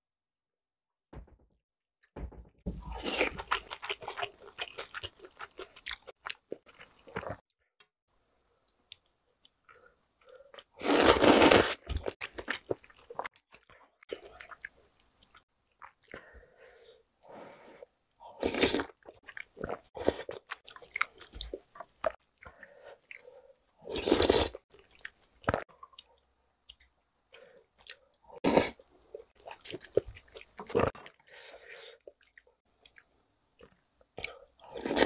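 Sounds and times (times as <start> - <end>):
loud noodle slurps: 10.8 - 11.8, 23.9 - 24.6, 28.4 - 28.8.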